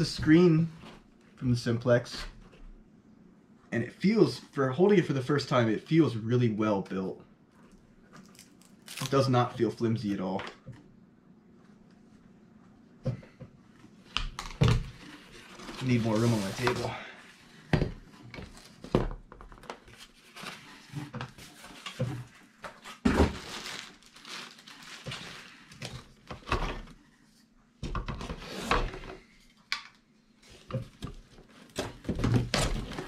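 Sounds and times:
cardboard rustling and scraping: 14.9 - 17.0, 19.5 - 27.0.

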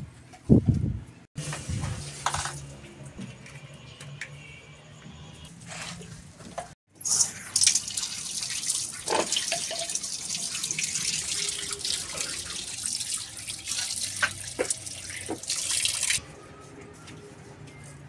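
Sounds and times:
tap water pouring and splashing: 7.0 - 16.2.

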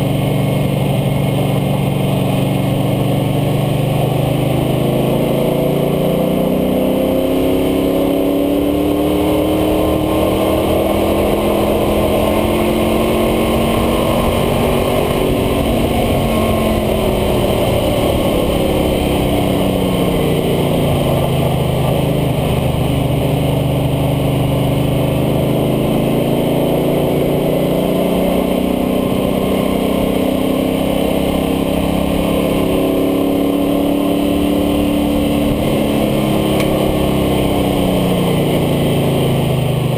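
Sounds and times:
car engine revving: 0.0 - 39.9
road noise: 0.0 - 39.9
wind noise: 7.4 - 25.3.

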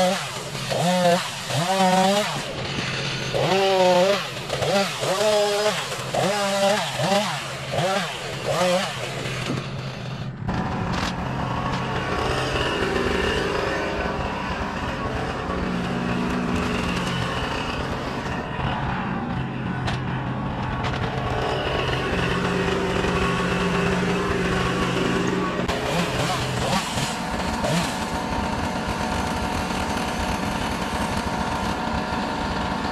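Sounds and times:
front loader pushing brush: 0.0 - 32.9
tractor diesel engine under load: 0.0 - 32.9.

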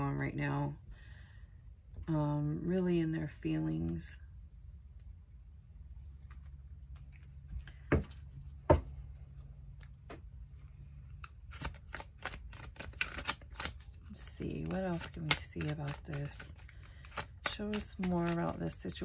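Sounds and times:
cards being shuffled: 9.7 - 19.0.

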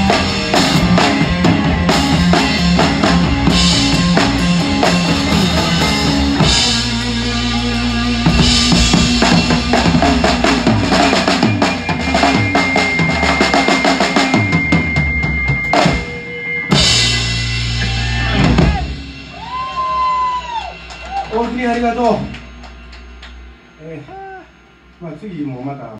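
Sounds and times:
electric guitar: 0.0 - 24.5
bass guitar: 0.0 - 24.9
rock drum kit: 0.0 - 25.0.

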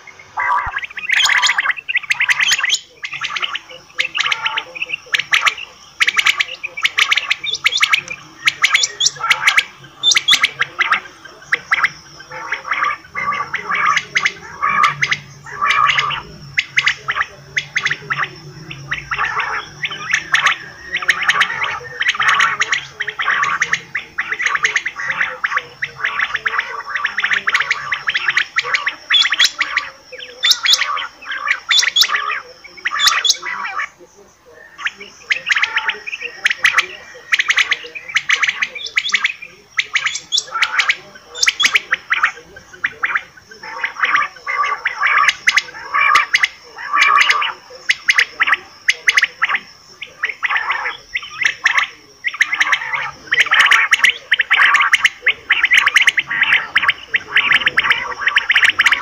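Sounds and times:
quail calling: 0.0 - 59.0
thin steady high tone: 0.0 - 59.0.

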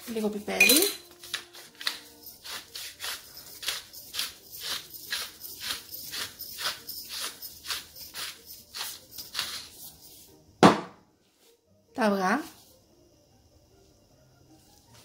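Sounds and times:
pepper mill grinding: 0.6 - 10.2.

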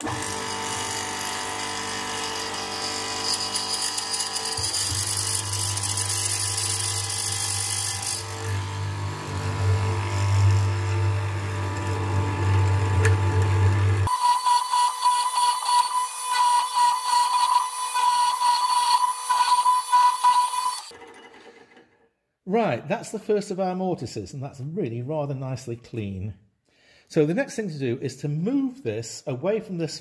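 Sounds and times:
mortiser motor hum: 0.0 - 21.9.

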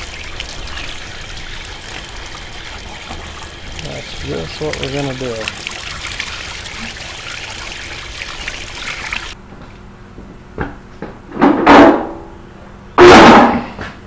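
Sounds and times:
hose water splashing on metal: 0.0 - 9.4.

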